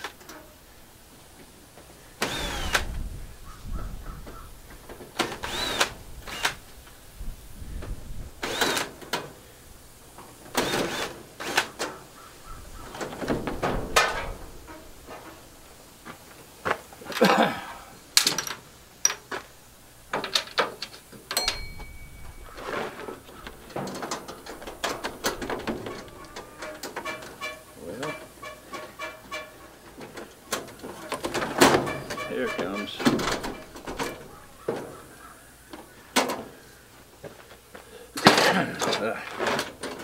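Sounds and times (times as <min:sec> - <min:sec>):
metal clanks and rattles: 0:12.8 - 0:15.6, 0:18.2 - 0:35.1.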